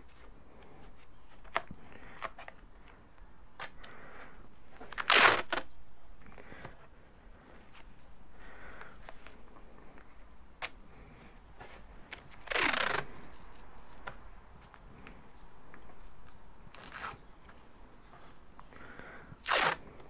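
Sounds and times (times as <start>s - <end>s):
adhesive tape ripping: 4.8s - 5.8s, 12.1s - 14.2s, 16.0s - 17.3s, 19.4s - 20.0s.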